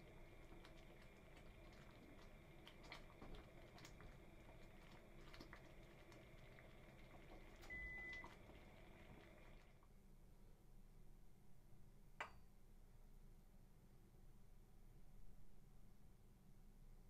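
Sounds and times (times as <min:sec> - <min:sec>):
porridge popping while simmering: 0:00.0 - 0:09.8
low steady hum: 0:00.0 - 0:17.0
brief steady tone: 0:07.6 - 0:08.3.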